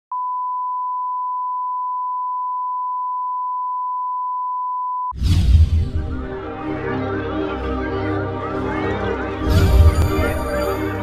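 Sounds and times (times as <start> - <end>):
swooshing hit: 5.2 - 7.2, 9.4 - 11.0
music: 5.2 - 11.0.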